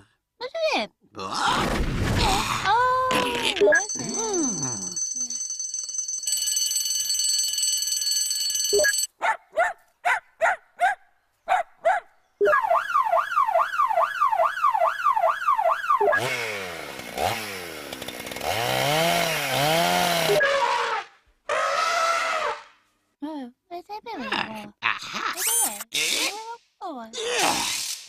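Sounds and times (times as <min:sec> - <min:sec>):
warbling alarm tone: 0:03.7 - 0:09.1.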